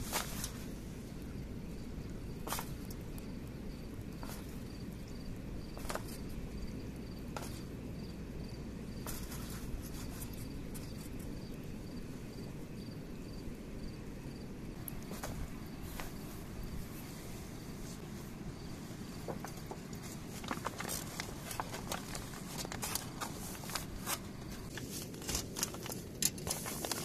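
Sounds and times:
insect chirping: 0.0s - 27.0s
aluminium foil crinkling: 19.4s - 27.0s.

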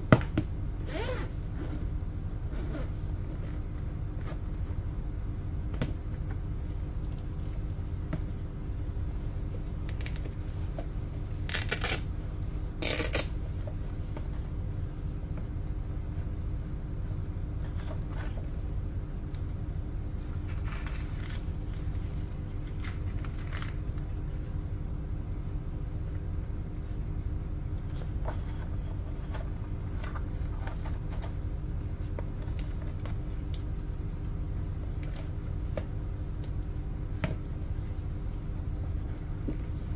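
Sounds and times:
steady low hum: 0.0s - 39.9s
zipper rasps: 0.8s - 1.8s.

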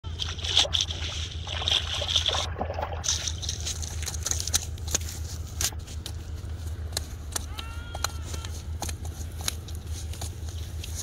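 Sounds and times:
fish splashing in water: 0.1s - 5.0s.

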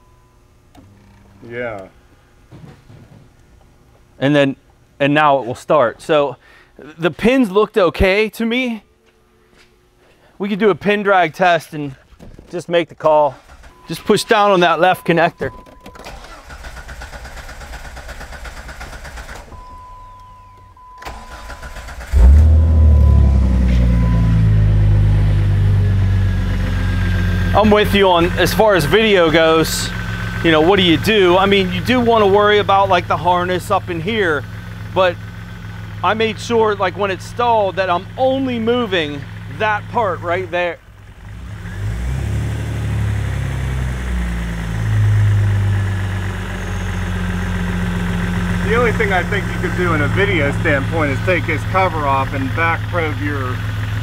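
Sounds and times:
car engine starting and idling: 13.0s - 54.0s
short steady beep: 19.6s - 21.4s, 22.8s - 24.7s.

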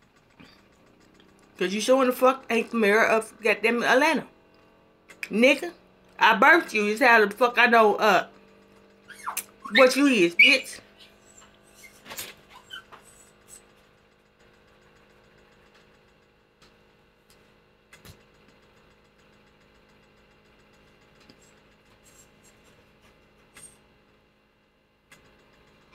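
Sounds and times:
faint mains hum: 0.0s - 25.9s
sharp clicks and taps: 4.6s - 5.4s.

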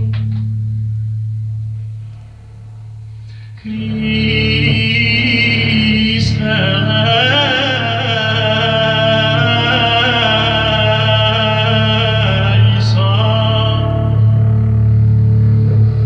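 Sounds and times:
instrumental tones over drone: 0.0s - 16.0s
person singing: 3.6s - 14.8s.

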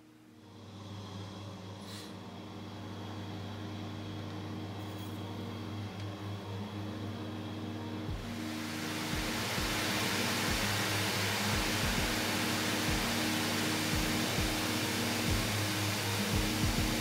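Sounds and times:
induction cooktop humming: 0.0s - 17.0s
heating water hissing: 8.0s - 17.0s.

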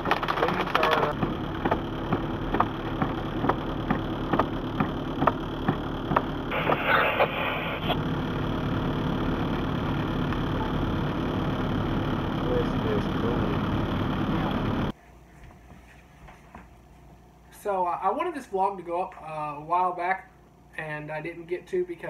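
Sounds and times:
vehicle engine idling: 0.0s - 15.0s.

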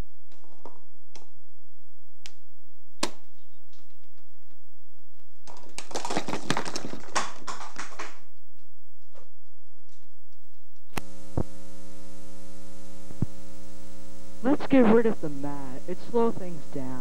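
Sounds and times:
plastic cups clattering on table: 5.5s - 8.3s.

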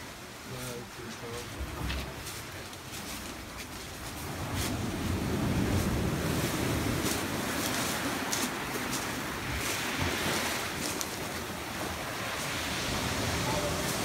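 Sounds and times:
ocean surf in a sea cave: 0.0s - 14.0s
footsteps crunching on sand: 0.6s - 14.0s
wind buffeting microphone: 1.2s - 14.0s.

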